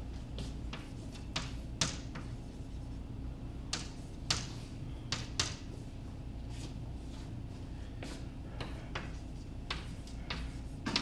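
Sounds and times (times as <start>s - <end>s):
steady low hum: 0.0s - 11.0s
chalk tapping on blackboard: 0.4s - 2.4s, 9.0s - 11.0s.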